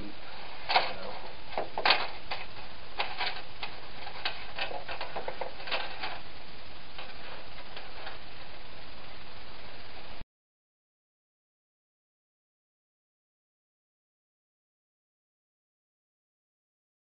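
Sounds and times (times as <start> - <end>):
steady hiss: 0.0 - 10.2.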